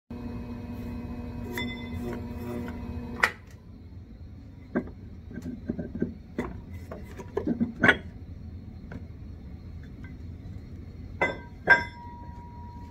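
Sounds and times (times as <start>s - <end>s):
pottery wheel motor humming: 0.1s - 12.9s
metal knocks and clunks: 11.2s - 12.3s.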